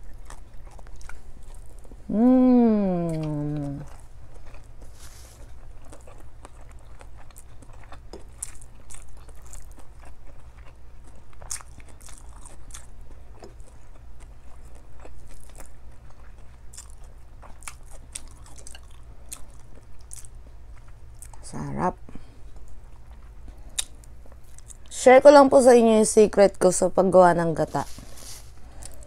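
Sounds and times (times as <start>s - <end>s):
low hum: 0.0s - 7.1s
person chewing food: 0.0s - 21.4s, 22.1s - 24.9s, 27.9s - 29.0s.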